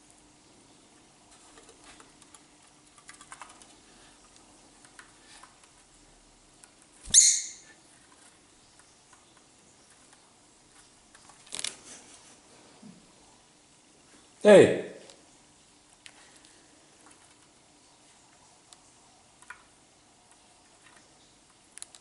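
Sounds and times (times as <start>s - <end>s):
bird chirping: 7.1s - 7.8s.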